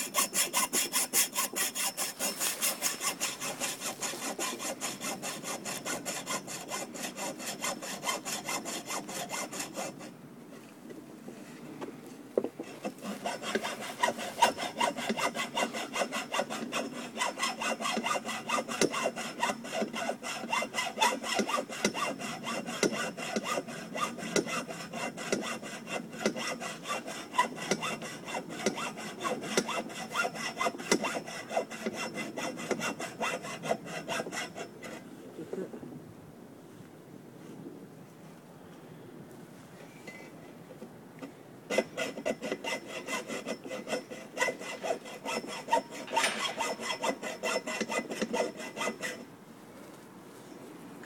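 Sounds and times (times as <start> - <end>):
hacksaw cutting metal: 0.0 - 10.1, 12.6 - 35.0, 41.7 - 49.2.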